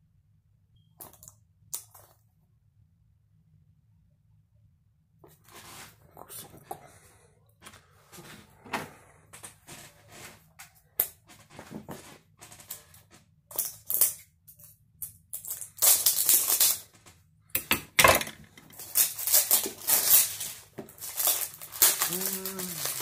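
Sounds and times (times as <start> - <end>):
cellophane crinkling: 15.4 - 17.1, 18.7 - 23.0.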